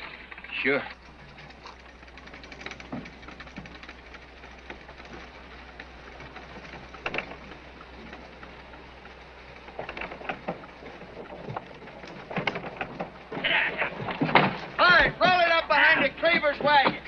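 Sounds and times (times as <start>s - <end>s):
steady outdoor hiss: 0.0s - 17.0s
wooden ferry knocking and creaking: 0.0s - 17.0s.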